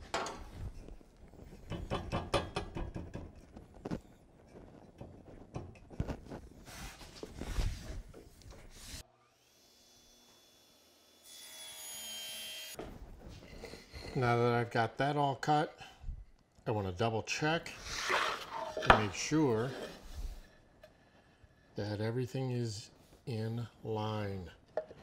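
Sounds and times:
board sliding on table top: 17.8 - 20.4.

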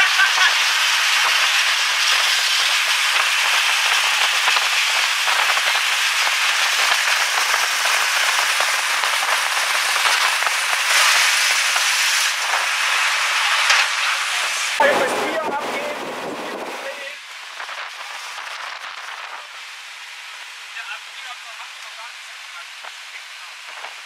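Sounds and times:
wind buffeting microphone: 14.8 - 19.5.

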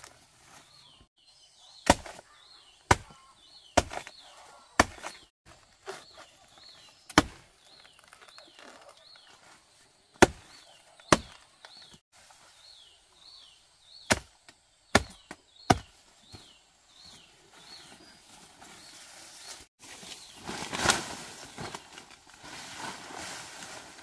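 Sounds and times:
machete chopping plant trunk: 1.8 - 2.2, 2.8 - 3.2, 3.8 - 4.2, 4.8 - 5.3, 7.1 - 7.5, 10.2 - 11.9, 14.0 - 14.3, 14.9 - 15.9.

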